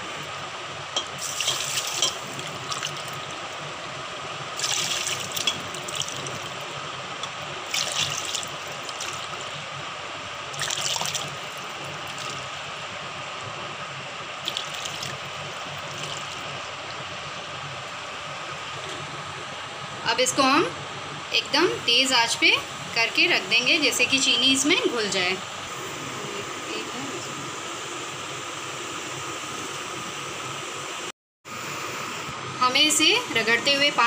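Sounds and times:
faint background hum: 0:00.0 - 0:34.0
water pouring splashily: 0:04.6 - 0:06.5, 0:07.7 - 0:09.5, 0:10.5 - 0:12.5, 0:14.4 - 0:15.2.

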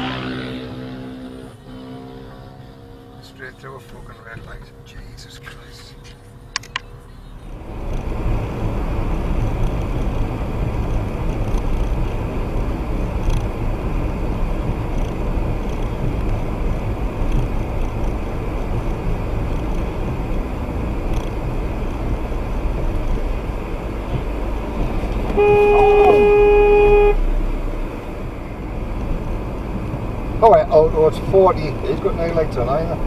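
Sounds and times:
car road noise on wet road: 0:00.0 - 0:33.0.

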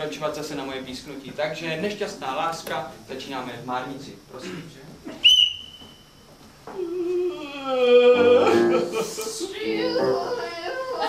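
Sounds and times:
whistle blown: 0:05.2 - 0:06.2.

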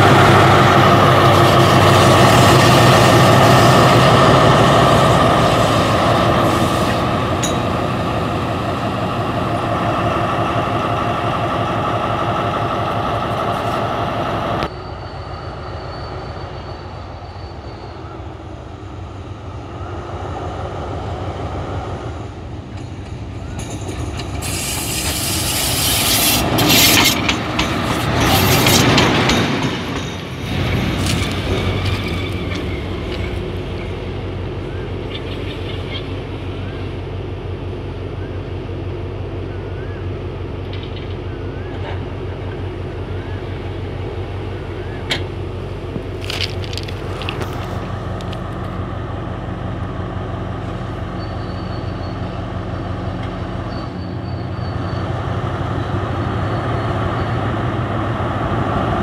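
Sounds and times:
train wheels: 0:00.0 - 0:36.3, 0:45.0 - 0:48.8
diesel locomotive engine: 0:00.0 - 0:59.0
distant engine: 0:00.0 - 0:59.0
rustling noise: 0:46.0 - 0:48.7.

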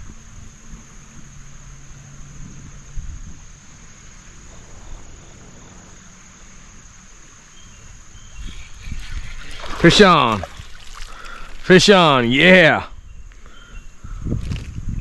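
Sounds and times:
insects trilling: 0:00.0 - 0:15.0
low microphone rumble: 0:02.1 - 0:10.8.

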